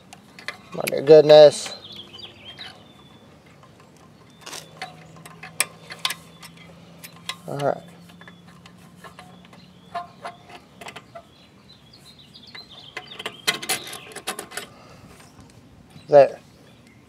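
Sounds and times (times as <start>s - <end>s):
small metal clicks and taps: 3.4s - 11.2s.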